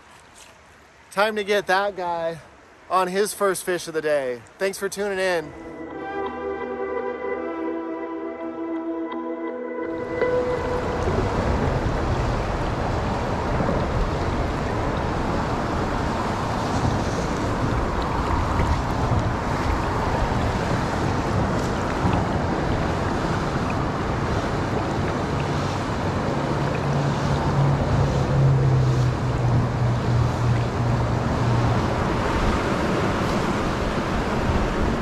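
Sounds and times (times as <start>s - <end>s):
river current rushing: 0.0s - 35.0s
wind buffeting microphone: 9.9s - 35.0s.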